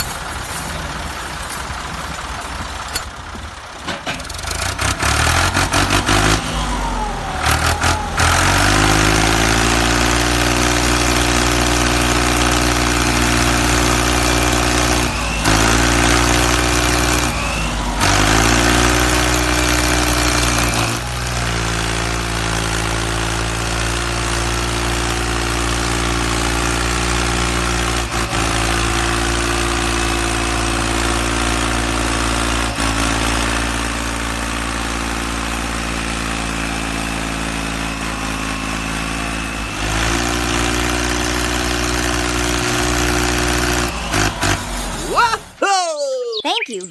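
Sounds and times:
engine idling: 0:00.0 - 0:25.0.

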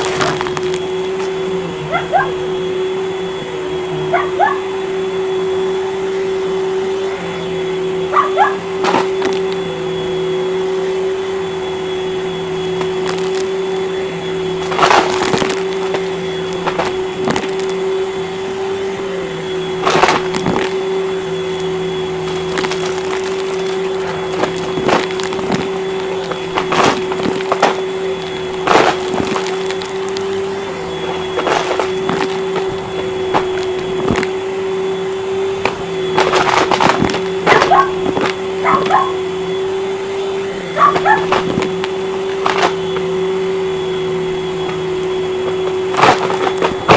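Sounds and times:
debris clicking and rattling: 0:00.0 - 0:01.3, 0:12.7 - 0:13.8, 0:14.6 - 0:17.9, 0:19.8 - 0:20.8, 0:21.5 - 0:34.4
vacuum cleaner running: 0:00.0 - 0:46.9.

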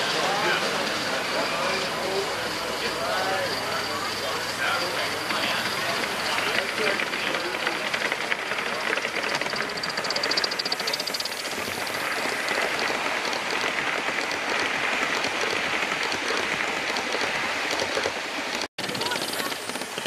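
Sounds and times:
model train wheels clattering: 0:04.3 - 0:20.0
fine rapid ticking: 0:06.0 - 0:20.0.

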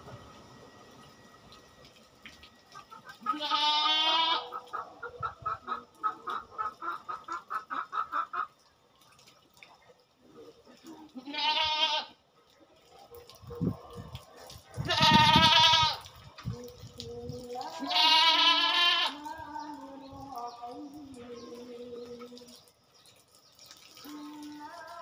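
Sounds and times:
goat bleating: 0:03.2 - 0:04.6, 0:11.1 - 0:12.2, 0:14.8 - 0:16.0, 0:17.7 - 0:19.3.

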